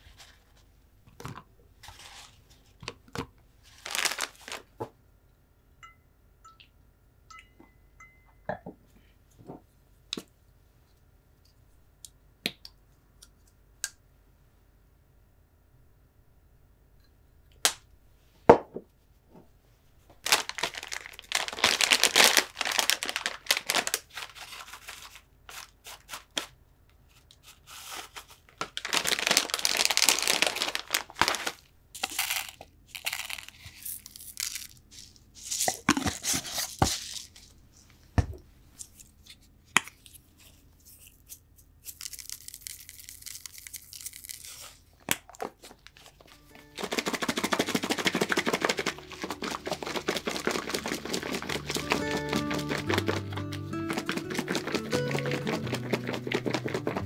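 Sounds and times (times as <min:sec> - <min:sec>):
plastic bag crinkling and tearing: 0:03.6 - 0:04.7, 0:20.2 - 0:26.5, 0:27.6 - 0:37.5, 0:39.9 - 0:57.0
seeds being sprinkled: 0:28.9 - 0:37.4, 0:46.5 - 0:57.0.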